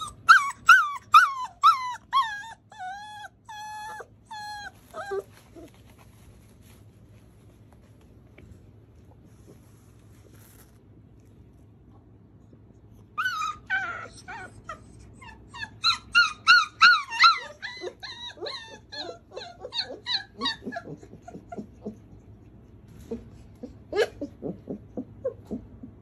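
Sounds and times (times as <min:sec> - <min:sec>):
puppy whimpering and yipping: 0:00.0 - 0:06.0, 0:13.0 - 0:22.3, 0:23.0 - 0:26.0.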